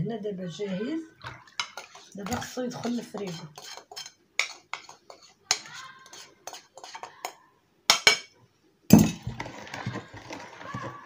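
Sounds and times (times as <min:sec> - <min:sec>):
glass jug and kitchenware clinking: 0:08.9 - 0:10.9.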